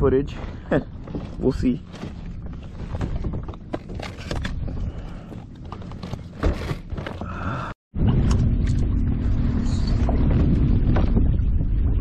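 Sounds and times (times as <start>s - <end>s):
wind: 0.0s - 12.0s
water rumble: 7.5s - 12.0s.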